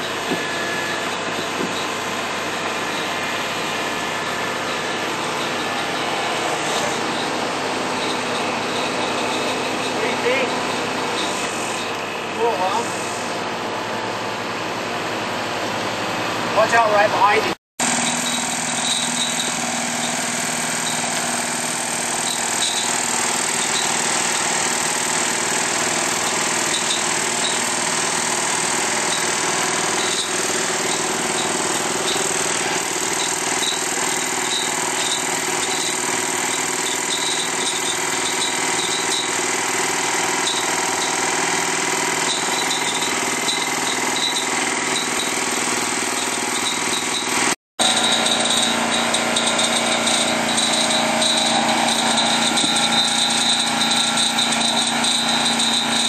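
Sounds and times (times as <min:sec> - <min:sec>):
engine running steadily: 0:00.0 - 0:56.0.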